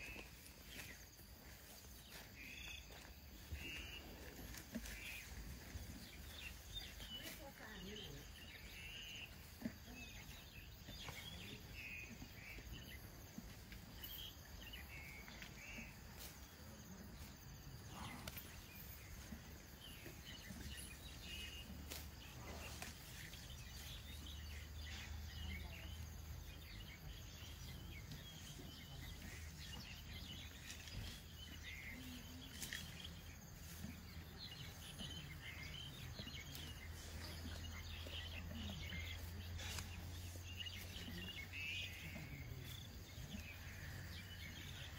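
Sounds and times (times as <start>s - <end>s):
insect calls: 0.0s - 44.9s.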